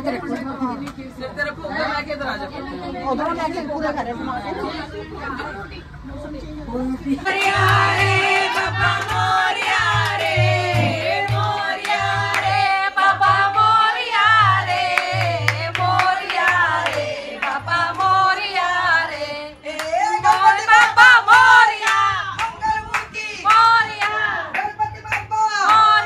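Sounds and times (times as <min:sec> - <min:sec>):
steady low beat: 0:07.1 - 0:24.5
devotional singing: 0:07.1 - 0:26.0.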